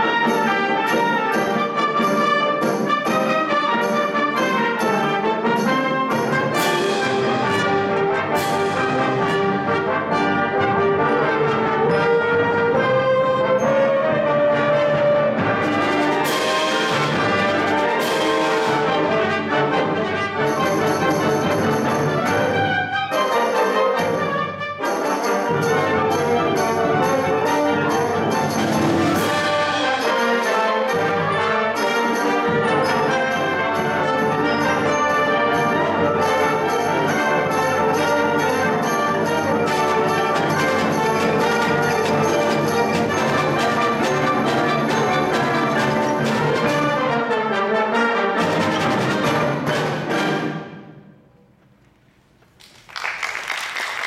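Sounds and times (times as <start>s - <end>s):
concert band playing: 0.0s - 50.9s
audience applause: 52.6s - 54.0s.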